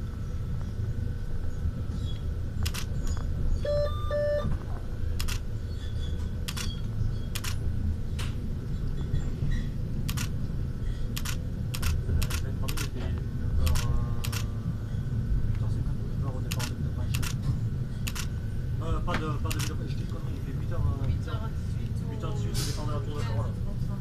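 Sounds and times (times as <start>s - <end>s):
electric railcar rumble: 0.0s - 24.0s
sharp irregular clicks: 2.6s - 2.9s, 10.1s - 10.4s, 11.2s - 13.0s, 16.5s - 17.4s, 19.5s - 19.8s
short electronic beeps: 3.6s - 4.5s.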